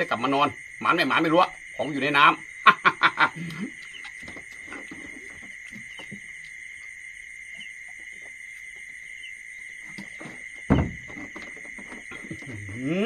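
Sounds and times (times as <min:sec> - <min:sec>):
crickets trilling: 0:00.0 - 0:13.0
thump: 0:10.2 - 0:12.5.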